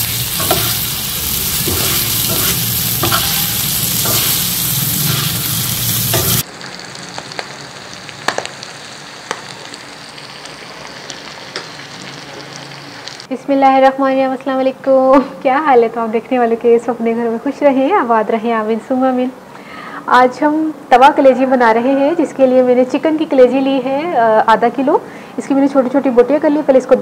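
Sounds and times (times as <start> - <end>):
meat sizzling on a hot pan: 0.0 - 13.3
steel spatula scraping and tapping pan: 0.3 - 6.4.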